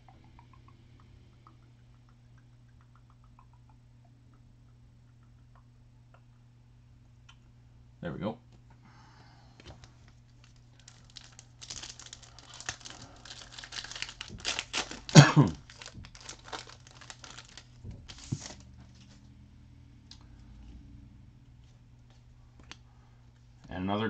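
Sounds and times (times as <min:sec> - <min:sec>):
foil wrapper crinkling: 0:09.6 - 0:18.7
foil wrapper ripping: 0:09.8 - 0:18.7.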